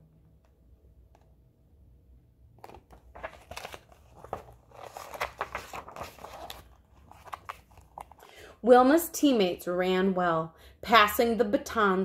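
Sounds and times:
book pages rustling: 2.6 - 8.3.

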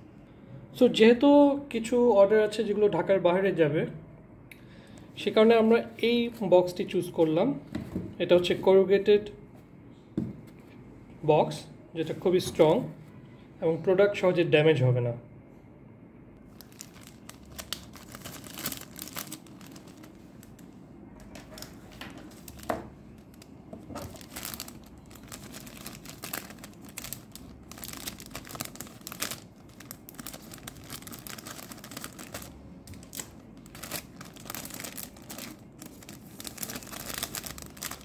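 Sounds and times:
cellophane bag crinkling: 16.5 - 38.0.

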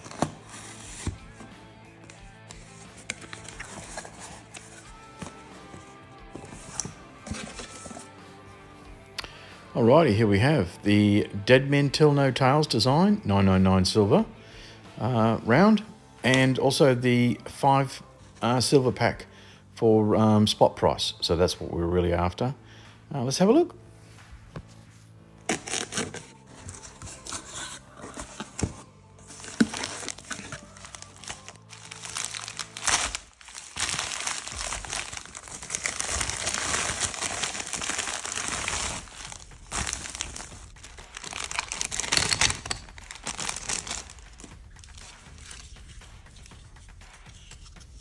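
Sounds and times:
paper rustling: 0.0 - 8.1, 25.5 - 48.0
plastic bag crinkling and tearing: 29.3 - 45.7.

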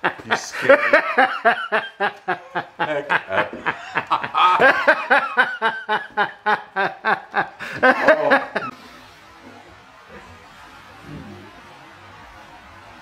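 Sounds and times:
man laughing hard: 0.0 - 8.7.

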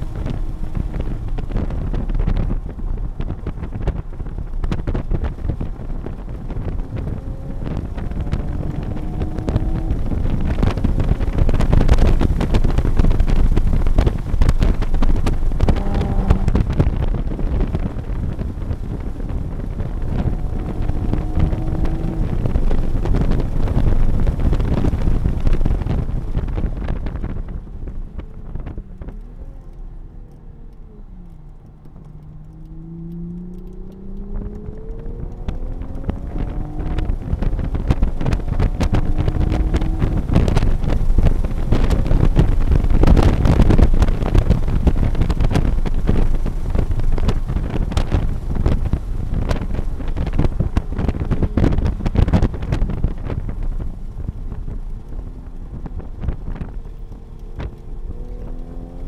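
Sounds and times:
car engine revving: 0.0 - 59.0
wind and road noise: 0.0 - 59.0.

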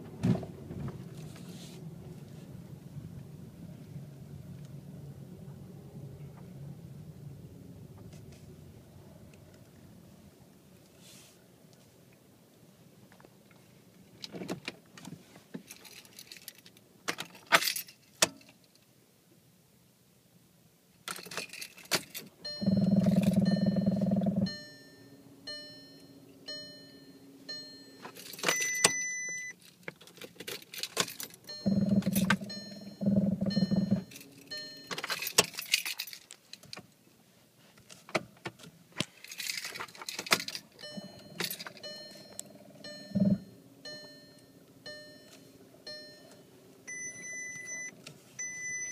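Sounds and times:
car keys jangling: 15.6 - 18.8, 21.0 - 24.6, 27.5 - 36.8, 39.1 - 47.9
key clicking in ignition: 21.1 - 24.6, 28.0 - 36.8, 39.3 - 45.4.

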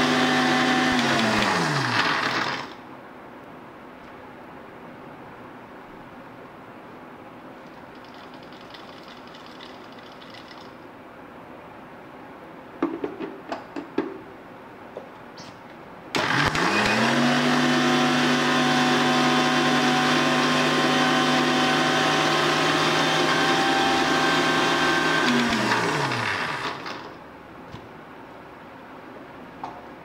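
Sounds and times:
mixer grinder motor grinding: 0.0 - 2.8, 16.2 - 27.1.

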